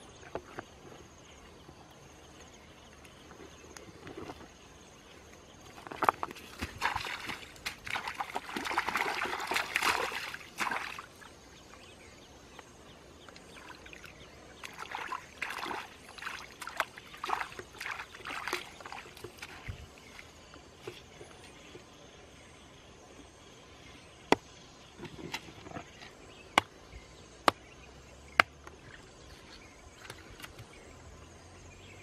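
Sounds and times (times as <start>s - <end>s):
feet splashing in water: 5.8s - 11.3s, 13.4s - 21.1s
hands splashing in water: 6.0s - 11.2s, 14.6s - 19.8s.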